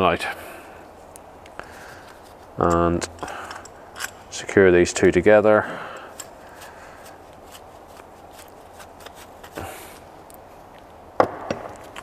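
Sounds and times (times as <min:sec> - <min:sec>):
metal parts clicking and rustling: 0:02.0 - 0:04.5.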